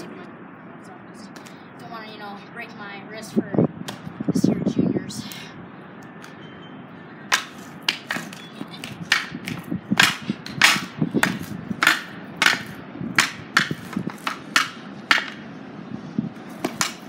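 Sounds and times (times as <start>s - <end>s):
hockey stick clacking on concrete: 7.3s - 15.5s, 16.5s - 17.0s.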